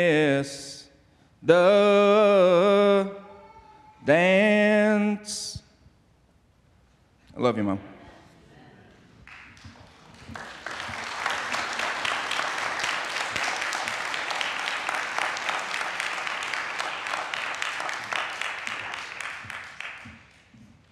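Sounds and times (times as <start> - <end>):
audience applauding: 9.2 - 20.5.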